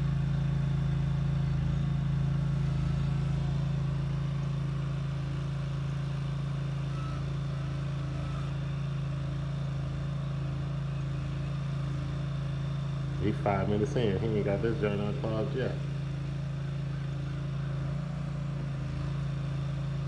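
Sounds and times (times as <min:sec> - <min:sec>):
small engine humming: 0:00.0 - 0:20.0.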